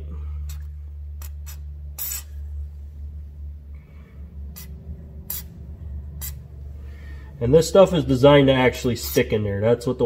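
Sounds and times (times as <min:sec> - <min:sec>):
aerosol can spray hisses: 0:01.2 - 0:02.4, 0:05.3 - 0:05.5.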